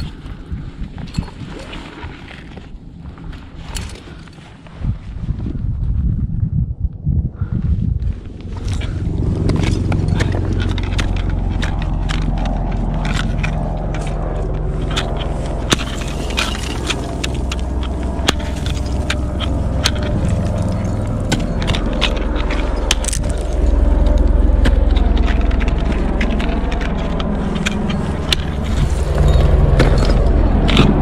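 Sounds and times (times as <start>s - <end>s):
metal climbing gear clinking: 0.0s - 2.7s, 3.3s - 4.5s, 8.4s - 31.0s
wind rumbling on microphone: 0.0s - 31.0s
ice axe and crampons scraping ice: 8.4s - 31.0s.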